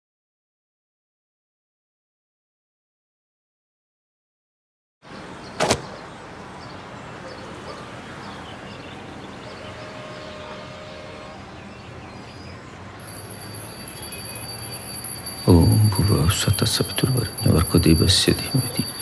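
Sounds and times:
faint high chirps: 0:12.1 - 0:19.0
faint held tone: 0:13.0 - 0:19.0
thin high tone: 0:13.0 - 0:19.0.

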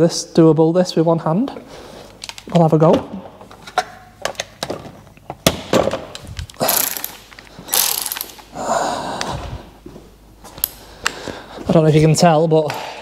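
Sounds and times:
metal tools clinking: 0:06.6 - 0:08.4
socket ratchet clicking: 0:06.6 - 0:08.4.

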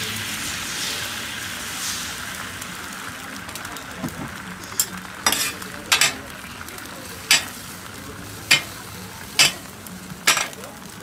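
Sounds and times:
egg sizzling on a griddle: 0:00.0 - 0:11.0
metal spatulas scraping steel: 0:04.8 - 0:06.2, 0:07.3 - 0:07.6, 0:08.5 - 0:08.8, 0:09.4 - 0:09.7, 0:10.3 - 0:10.6.

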